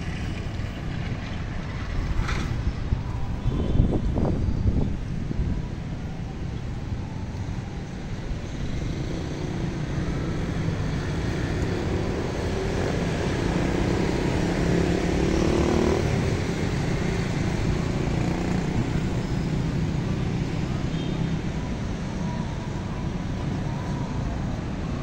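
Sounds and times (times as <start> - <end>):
wind buffeting microphone: 0.0 - 9.2
street traffic rumble: 0.0 - 25.0
vehicle engine drone: 0.0 - 25.0.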